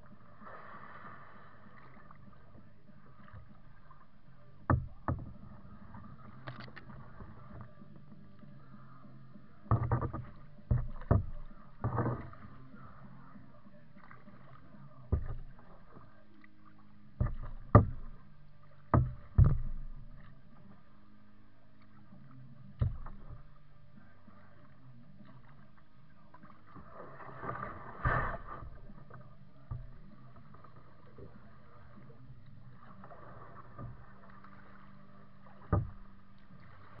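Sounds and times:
paddle splash: 0.0 - 37.0
paddle knocks on kayak hull: 4.6 - 5.4, 9.7 - 12.5, 15.1 - 15.6, 17.2 - 20.3, 22.7 - 23.5, 35.6 - 36.1.

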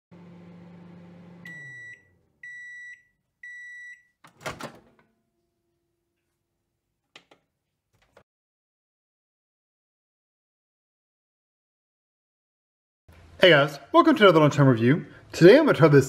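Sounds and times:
microwave oven humming: 0.1 - 3.8
microwave beeps: 1.2 - 4.2.

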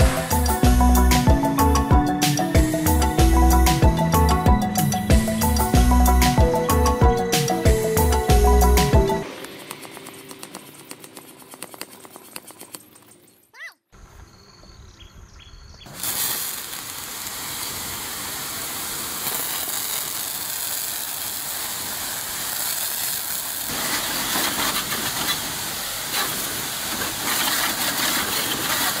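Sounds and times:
water jet hissing: 0.0 - 3.8, 15.9 - 29.0.

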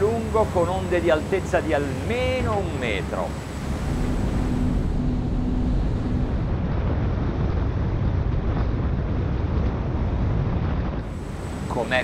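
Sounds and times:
boat engine drone: 0.0 - 12.0
wind buffeting microphone: 3.4 - 12.0.

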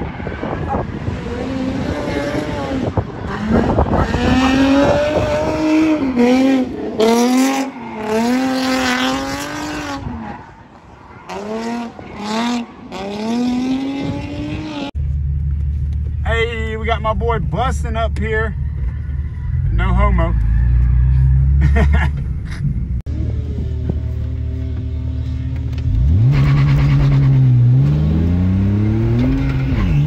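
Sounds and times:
car engine revving: 0.0 - 16.2, 23.1 - 30.0.

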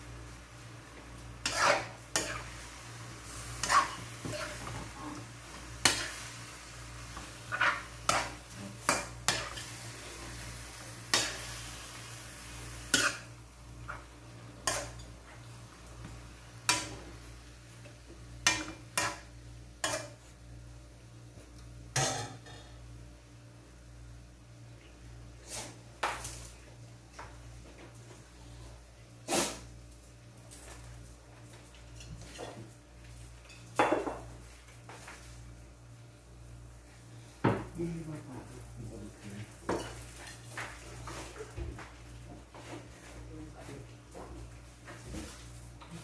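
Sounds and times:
faint sizzle of frying: 0.0 - 46.0
spoon scraping and clanking wok: 1.4 - 2.6, 3.5 - 4.7, 5.8 - 6.3, 7.2 - 9.8, 11.1 - 11.6, 12.8 - 15.1, 18.4 - 20.2.

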